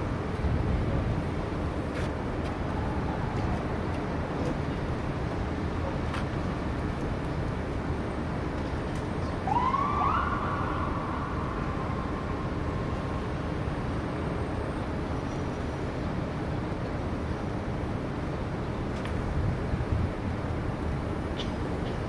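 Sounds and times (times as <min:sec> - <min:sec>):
city traffic rumble: 0:00.0 - 0:22.0
siren wail: 0:09.4 - 0:13.2.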